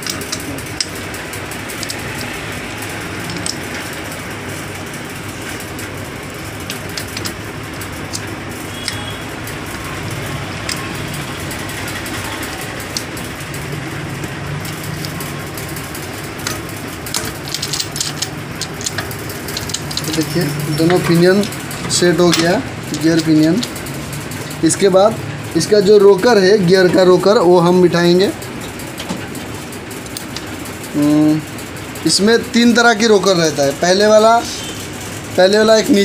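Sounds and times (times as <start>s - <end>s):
metallic clicks and taps: 0.0s - 1.0s, 1.7s - 2.4s, 3.2s - 4.2s.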